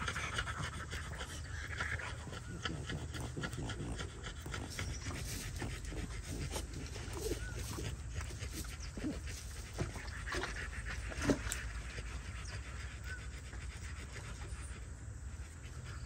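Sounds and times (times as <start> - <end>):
rapid panting breaths: 0.0 - 16.0.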